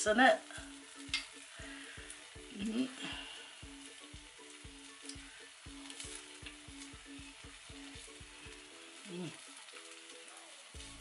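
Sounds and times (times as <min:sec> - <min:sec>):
background music with steady beat: 0:00.0 - 0:11.0
hot oil sizzling: 0:00.0 - 0:11.0.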